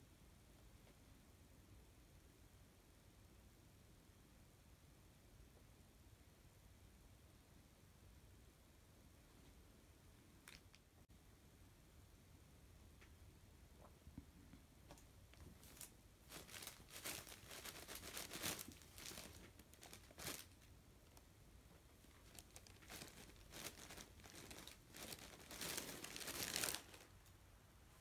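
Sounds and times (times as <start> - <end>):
plastic crinkling and rustling: 14.9 - 27.4.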